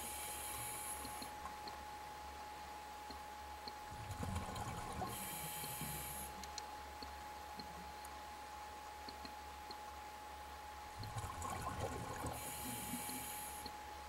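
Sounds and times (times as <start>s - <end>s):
regulator inhale hiss: 0.0s - 1.3s, 5.1s - 6.4s, 12.4s - 13.7s
faint steady tone: 0.0s - 14.0s
exhaled bubbles gurgling: 3.9s - 5.4s, 11.0s - 13.2s.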